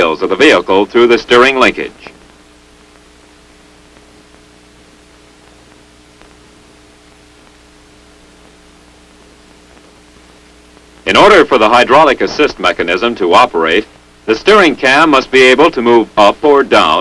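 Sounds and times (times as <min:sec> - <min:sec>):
faint hum: 0:00.0 - 0:17.0
old film soundtrack hiss: 0:00.0 - 0:17.0
faint ticks: 0:05.4 - 0:06.4.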